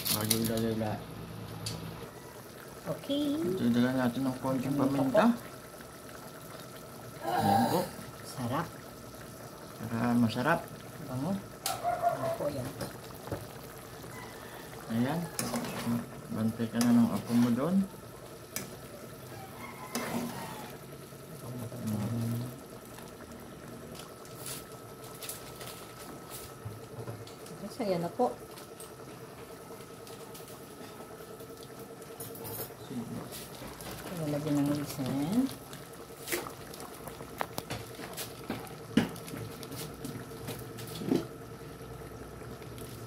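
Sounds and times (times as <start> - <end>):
sauce bubbling in a frying pan: 0.0 - 43.0
metal spatula stirring: 15.3 - 16.0
small clicks and pops: 35.7 - 39.4.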